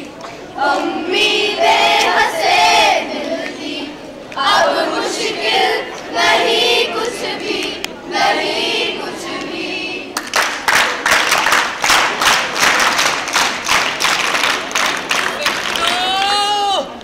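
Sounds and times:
young voices singing together: 0:00.0 - 0:10.6
rhythmic hand-clapping: 0:09.3 - 0:16.4.

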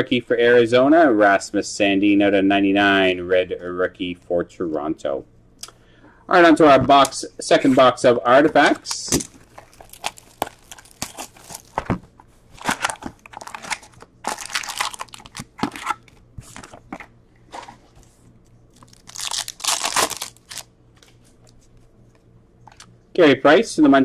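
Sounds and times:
foil wrappers crinkling: 0:08.6 - 0:17.8, 0:18.7 - 0:21.6
foil pack ripped open: 0:09.1 - 0:11.9, 0:12.6 - 0:16.0, 0:18.8 - 0:20.7.

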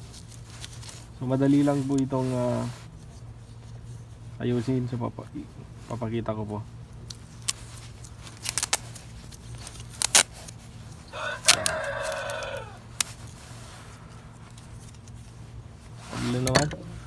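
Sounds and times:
rooster crowing: 0:11.1 - 0:12.9.

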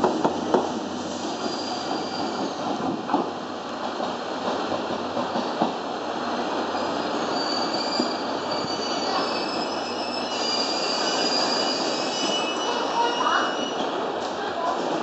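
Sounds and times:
train rolling on track: 0:00.0 - 0:15.0
train wheels squealing: 0:01.2 - 0:02.7, 0:06.7 - 0:13.9.

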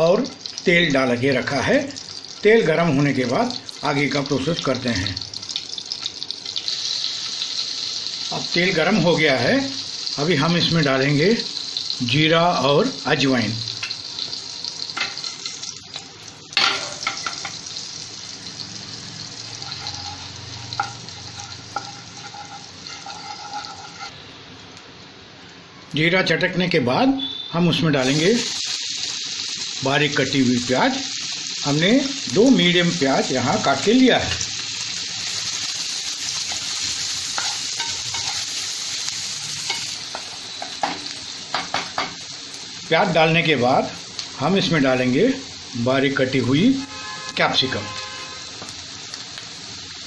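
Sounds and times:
seeds sizzling in oil: 0:00.0 - 0:26.1, 0:26.8 - 0:50.0
spatula stirring in pan: 0:19.5 - 0:24.2, 0:36.5 - 0:38.8.

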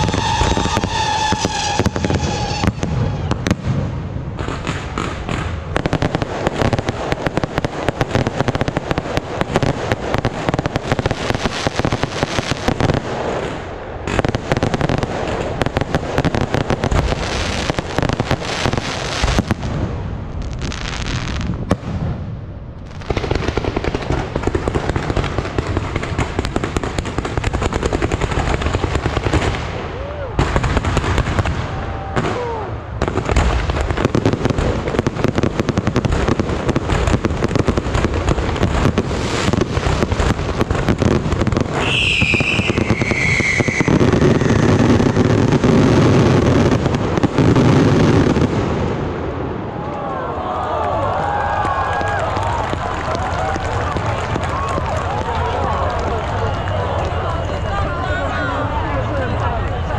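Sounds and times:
firework high whistle: 0:00.0 - 0:03.6, 0:41.7 - 0:45.6
fireworks crackling and popping: 0:00.0 - 0:50.0, 0:50.6 - 0:59.9.

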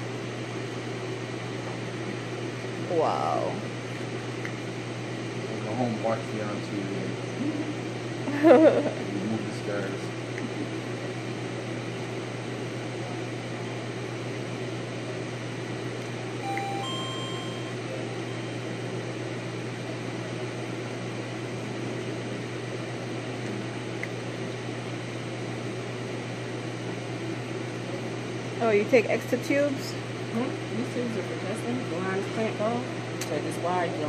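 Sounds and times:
machine hum and air noise: 0:00.0 - 0:34.0
short electronic tones: 0:16.4 - 0:17.8.

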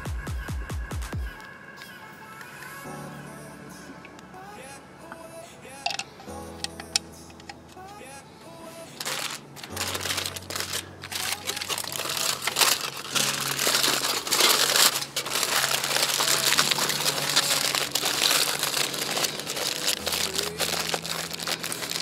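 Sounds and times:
aluminium foil crinkling: 0:05.8 - 0:08.0, 0:08.8 - 0:22.0.

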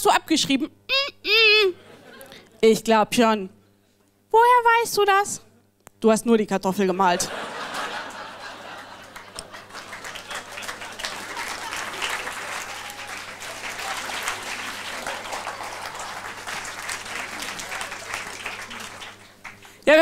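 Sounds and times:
audience applauding: 0:07.4 - 0:19.8.

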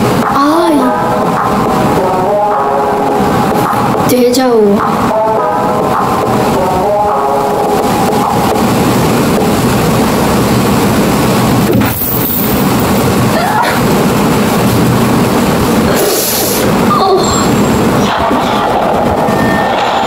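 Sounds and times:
loud dense rumble: 0:00.0 - 0:20.0.

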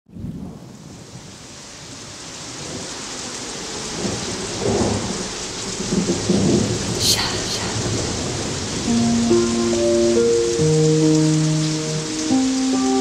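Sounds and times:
thunder rumbles: 0:00.1 - 0:12.2
steady rain: 0:00.1 - 0:13.0
sharp thunder crack: 0:05.8 - 0:08.9.

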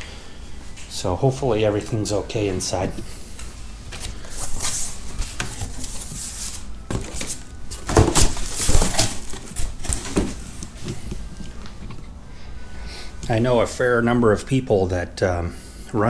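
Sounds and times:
plastic wrapping crinkling: 0:04.0 - 0:11.8
cardboard box flaps rustling: 0:04.5 - 0:11.4.

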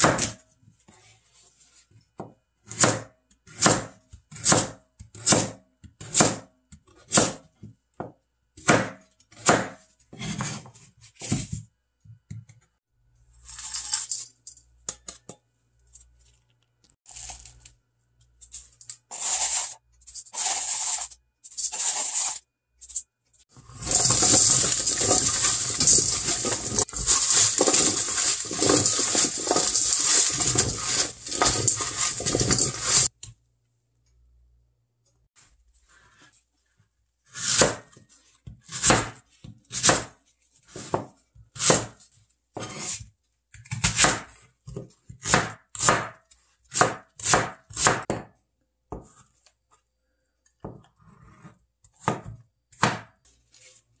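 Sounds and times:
knife chopping on plastic board: 0:02.2 - 0:09.8, 0:42.6 - 0:49.2, 0:51.9 - 0:53.2
radish chunks rattling in glass bowl: 0:23.6 - 0:33.1
salt and chili flakes landing: 0:23.7 - 0:33.1.

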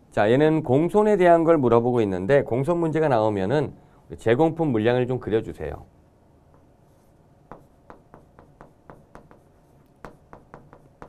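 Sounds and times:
chalk writing on chalkboard: 0:06.5 - 0:11.0.

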